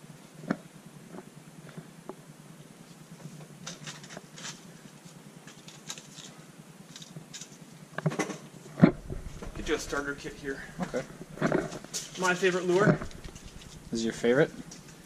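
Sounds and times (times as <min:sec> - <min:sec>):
blister packs rustling and clicking: 0:03.6 - 0:07.6, 0:08.8 - 0:14.0.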